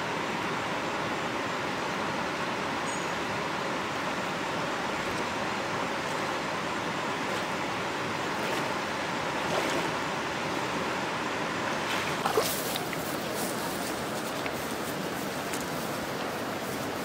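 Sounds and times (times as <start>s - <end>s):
shallow river flowing: 0.0s - 17.0s
legs wading through water: 4.7s - 10.9s, 11.7s - 17.0s
tall grass swishing: 11.9s - 17.0s.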